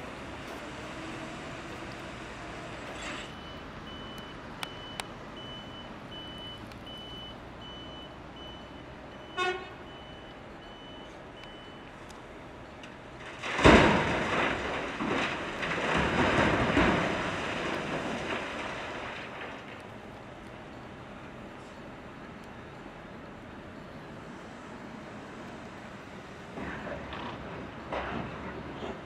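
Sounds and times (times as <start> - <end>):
reversing alarm beeping: 3.2 - 11.9
rock crashing into steel trailer: 13.2 - 19.8.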